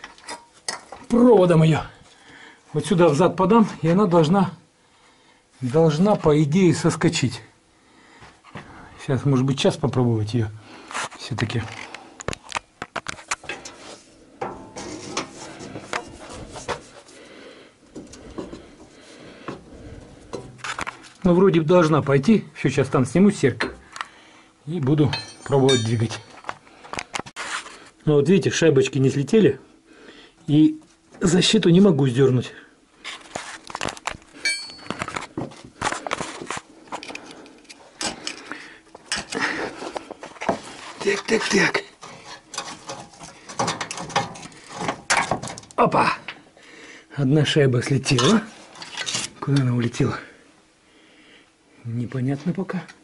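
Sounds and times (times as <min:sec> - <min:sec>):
metallic clinks and knocks: 0:25.1 - 0:26.5, 0:34.4 - 0:35.2
high metallic ring: 0:34.4 - 0:35.0.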